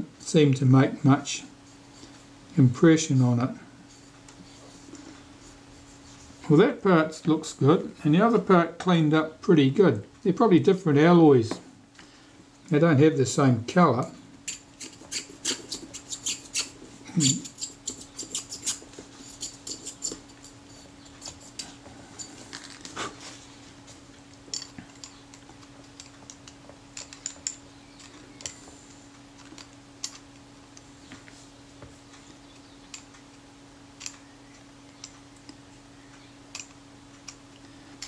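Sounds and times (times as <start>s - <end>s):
faint steady hum: 0.0s - 38.0s
toothpick scraping: 14.4s - 23.2s
small clicks and scrapes of metal parts: 14.5s - 23.0s, 24.3s - 31.4s, 32.1s - 33.4s, 34.0s - 34.3s, 36.5s - 38.0s.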